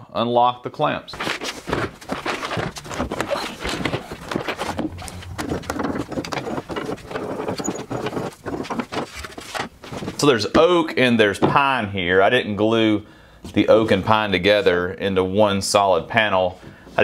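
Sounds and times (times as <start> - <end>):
plastic boxes clattering: 1.1 - 10.7.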